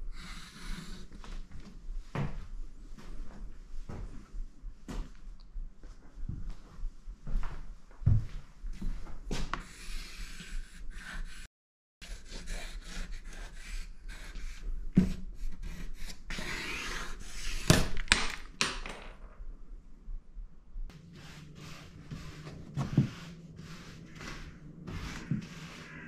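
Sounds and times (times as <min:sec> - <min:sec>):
charcoal scratching on paper: 0:09.6 - 0:17.7.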